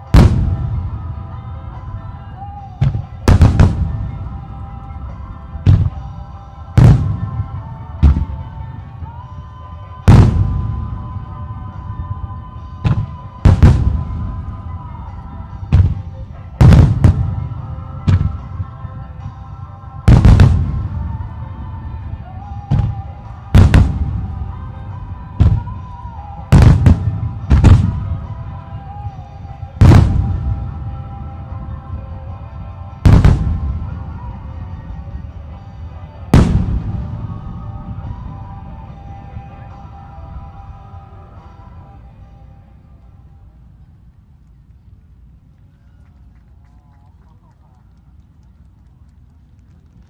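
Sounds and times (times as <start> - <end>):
fireworks booming: 0.0 - 1.4, 2.8 - 4.6, 5.2 - 8.4, 10.1 - 11.2, 12.7 - 14.7, 15.7 - 18.8, 20.1 - 21.4, 22.6 - 29.1, 29.8 - 32.0, 33.0 - 34.4, 36.3 - 39.7
music: 0.0 - 50.0.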